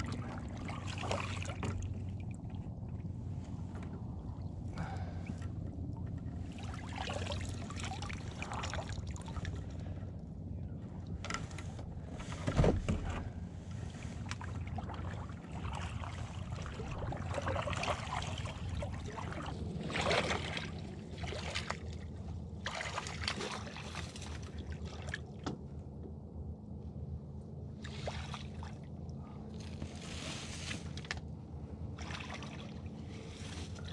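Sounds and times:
paddle splashing water: 0.0s - 3.3s, 4.8s - 10.0s, 11.6s - 25.4s, 27.8s - 28.8s, 31.9s - 33.9s
steady low rumble: 0.0s - 33.9s.

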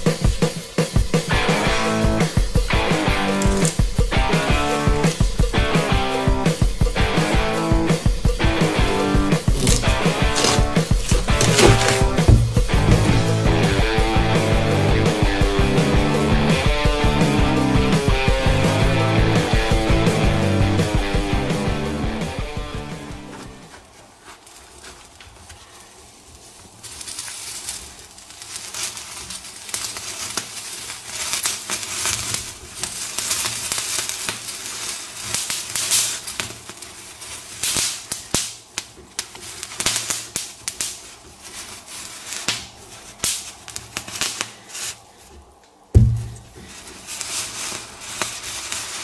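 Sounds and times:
wet rind sizzling and crackling: 0.0s - 5.6s, 8.1s - 14.1s, 26.1s - 49.0s
loud thump: 11.1s - 13.6s, 46.0s - 46.6s.

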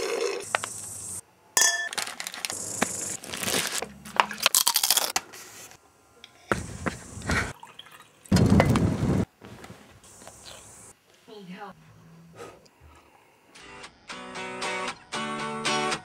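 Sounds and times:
crunching of chip being chewed: 4.5s - 5.1s.

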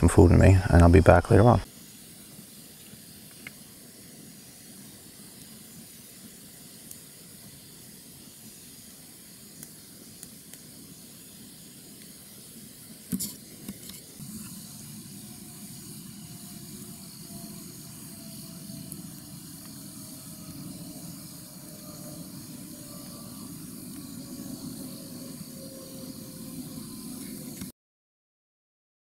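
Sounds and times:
campfire hissing: 0.0s - 27.7s
fire crackling and popping: 1.6s - 27.7s.

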